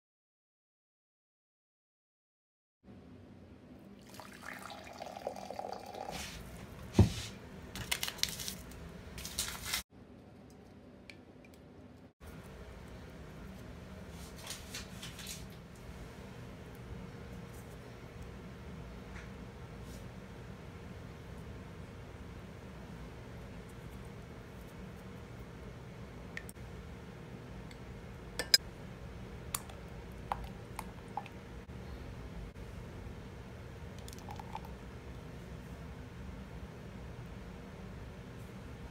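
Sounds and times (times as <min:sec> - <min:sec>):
water pouring and sloshing: 0:04.0 - 0:07.0
glass bowl clicking on mug: 0:28.4 - 0:28.6.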